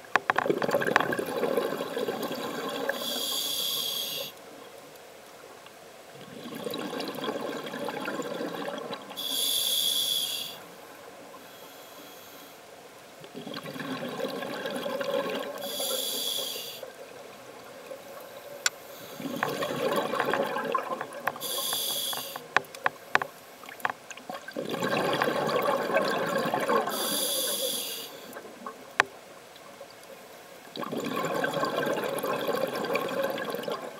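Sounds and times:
diver breathing through regulator: 2.9s - 4.4s, 9.2s - 10.6s, 15.6s - 16.8s, 21.3s - 22.6s, 26.9s - 28.3s.

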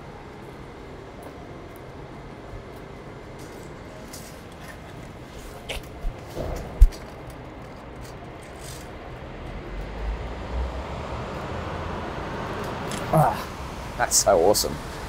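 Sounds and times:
vehicle passing on wet street: 8.6s - 15.0s.

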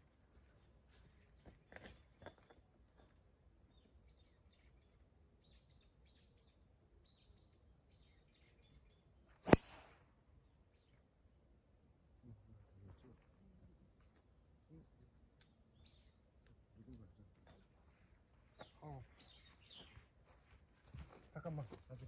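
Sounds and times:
faint bird chirps: 3.6s - 9.5s, 12.2s - 20.5s
golf club striking ball: 9.4s - 10.0s.

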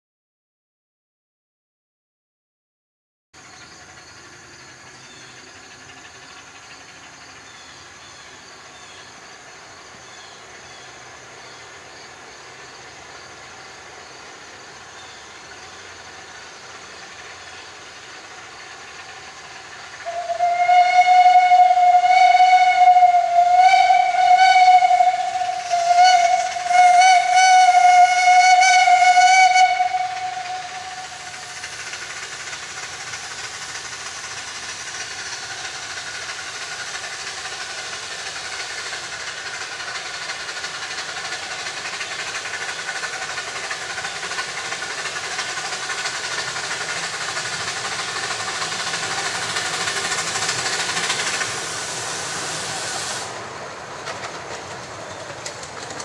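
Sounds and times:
steam engine hiss: 3.4s - 56.0s
steam whistle blasts: 20.0s - 31.5s.

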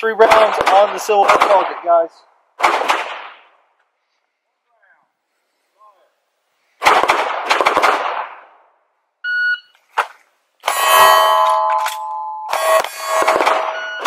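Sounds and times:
pistol firing rapid shots: 0.2s - 1.8s, 2.6s - 3.4s, 6.8s - 8.4s, 12.6s - 13.8s
distant gunshots: 0.2s - 2.0s, 2.6s - 3.6s, 6.8s - 8.6s, 12.6s - 13.9s
shot timer beep: 9.2s - 9.7s, 10.7s - 14.0s
steel target ringing: 10.6s - 14.0s.

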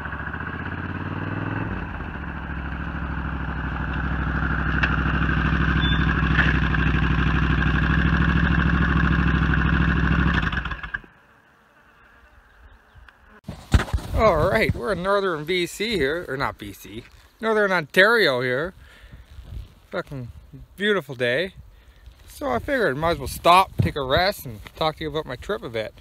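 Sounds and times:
motorcycle engine running: 0.0s - 11.2s.

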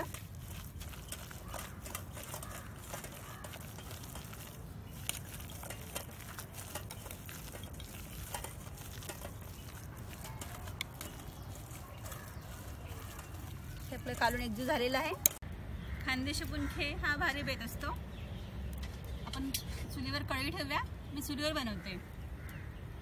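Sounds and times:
whisk stirring wet batter: 0.0s - 15.4s.

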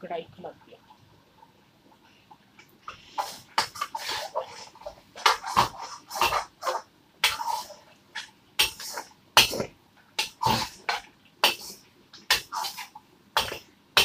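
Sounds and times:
metal spatula scraping iron pan: 3.2s - 9.5s.

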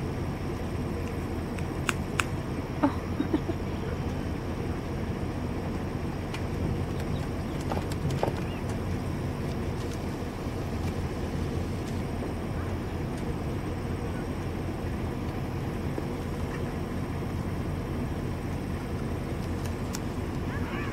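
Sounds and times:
vehicle driving on gravel: 0.0s - 20.9s.

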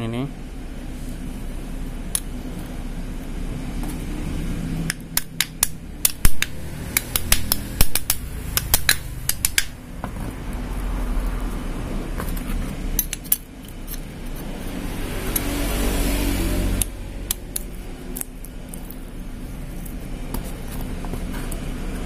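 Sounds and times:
low steady hum: 0.0s - 22.0s
sharp metallic clicks and clinks: 13.0s - 14.7s.

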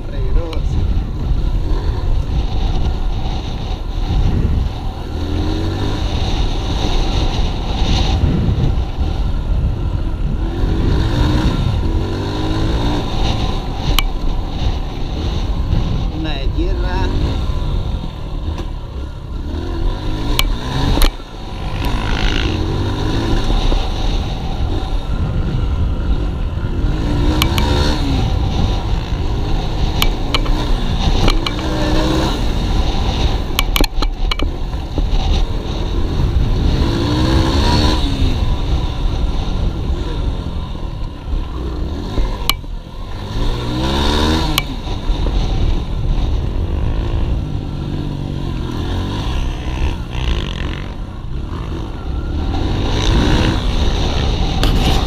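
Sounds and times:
wind rumble on microphone: 0.0s - 55.0s
dirt bike engine revving: 1.4s - 9.1s, 10.0s - 40.7s, 41.3s - 55.0s.

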